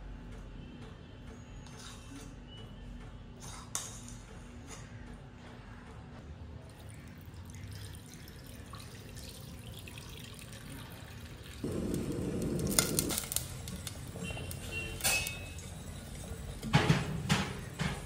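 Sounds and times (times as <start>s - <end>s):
liquid pouring: 6.7s - 13.5s
low room hum: 11.2s - 14.3s.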